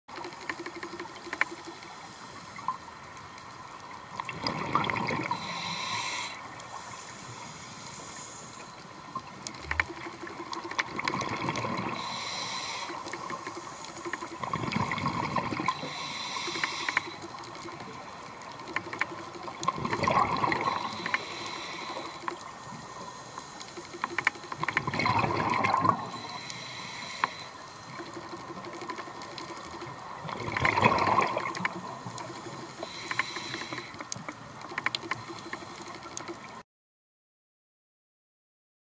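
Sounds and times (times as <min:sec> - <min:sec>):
faint clicking: 0:00.1 - 0:36.6
diver breathing through regulator: 0:05.2 - 0:08.6, 0:11.8 - 0:14.3, 0:15.0 - 0:17.3, 0:20.5 - 0:24.1, 0:26.0 - 0:27.9, 0:32.4 - 0:34.2.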